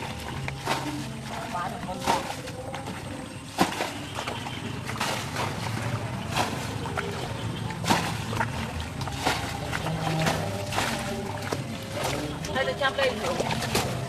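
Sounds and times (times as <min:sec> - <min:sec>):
water splashing: 0:00.0 - 0:14.0.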